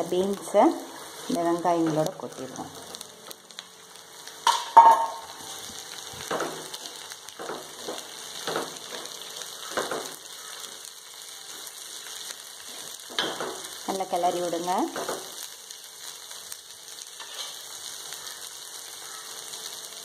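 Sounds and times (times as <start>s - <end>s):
vegetables sizzling in oil: 0.0s - 20.0s
steel bowl clanking on pan: 4.4s - 5.3s
spatula scraping pan: 17.2s - 17.7s.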